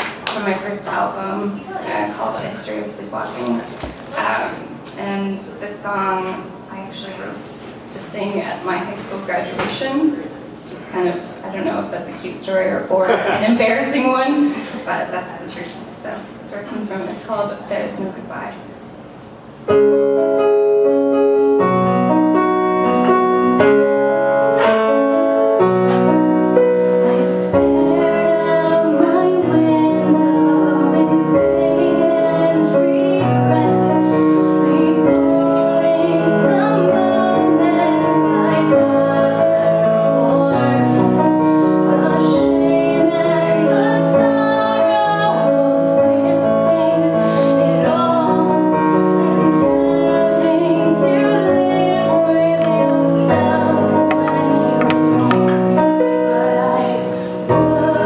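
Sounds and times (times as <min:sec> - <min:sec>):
keyboard piano accompaniment: 0:18.8 - 0:58.0
woman singing: 0:27.0 - 0:55.0, 0:55.8 - 0:58.0.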